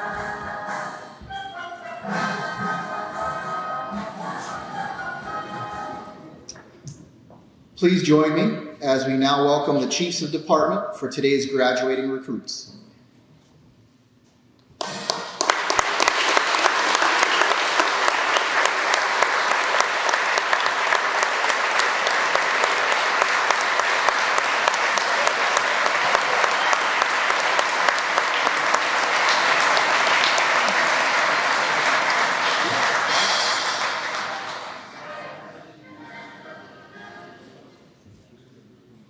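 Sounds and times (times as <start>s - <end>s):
audience applauding: 14.8s - 35.4s.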